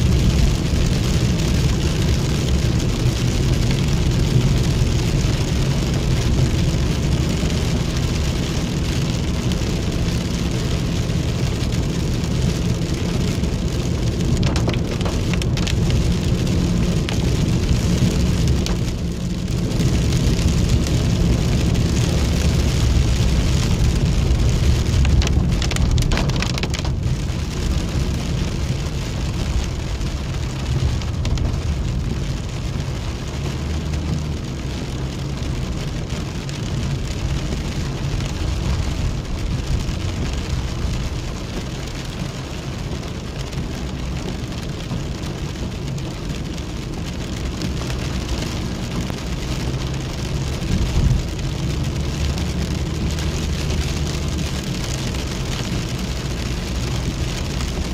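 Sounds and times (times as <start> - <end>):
engine and tyres rumbling: 0.0 - 57.9
rain on vehicle glass: 0.0 - 57.9.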